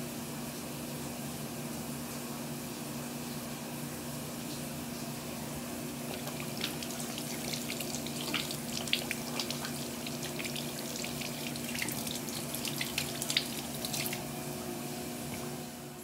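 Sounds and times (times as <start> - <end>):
water splashing: 6.1 - 14.3.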